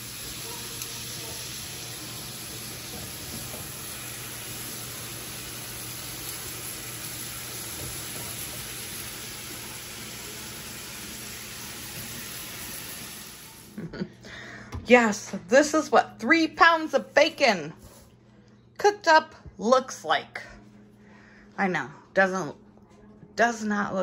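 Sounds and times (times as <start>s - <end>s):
bacon sizzling in a pan: 0.0s - 13.7s
vent fan hum: 0.0s - 24.0s.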